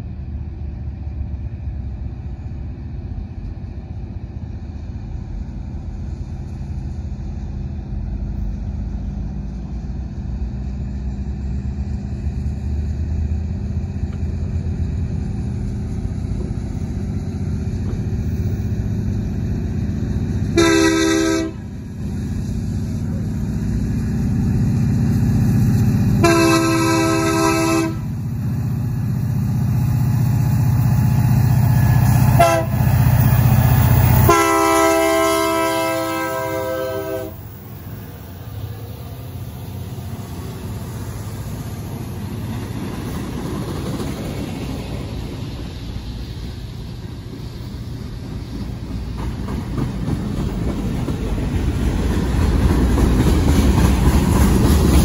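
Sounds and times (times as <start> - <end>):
diesel locomotive engines rumbling: 0.0 - 55.0
train air horn blasts: 20.6 - 21.7, 26.2 - 28.2, 32.4 - 32.8, 34.2 - 37.4.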